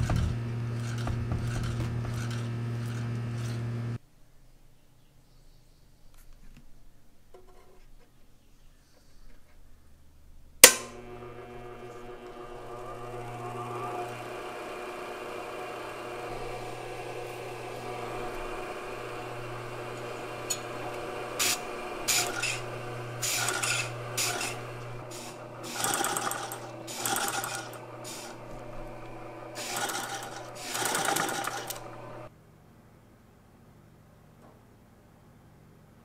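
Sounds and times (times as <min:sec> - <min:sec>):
sewing machine running in spurts: 0:00.0 - 0:03.7, 0:11.0 - 0:32.3
electric motor hum: 0:00.0 - 0:04.0, 0:10.6 - 0:32.3.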